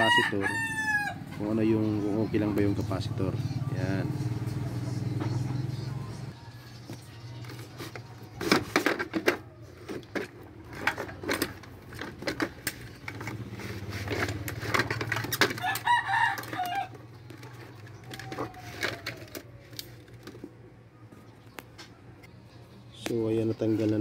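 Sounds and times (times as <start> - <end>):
rooster crowing: 0.0 - 1.4, 15.4 - 17.1, 18.0 - 19.5
plastic cover clicking and clattering: 8.4 - 13.4, 14.0 - 16.7.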